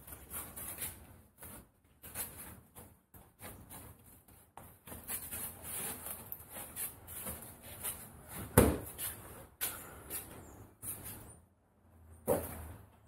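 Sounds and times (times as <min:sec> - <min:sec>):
knocks and scuffs on foam board: 0:00.1 - 0:09.2.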